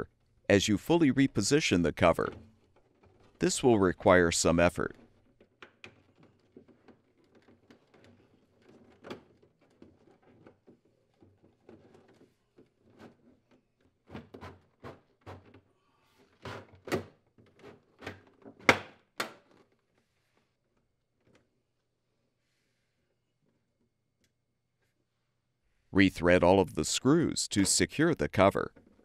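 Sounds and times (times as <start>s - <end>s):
plastic rubbing: 4.8s - 18.7s
plastic knocks and clicks: 5.0s - 15.6s.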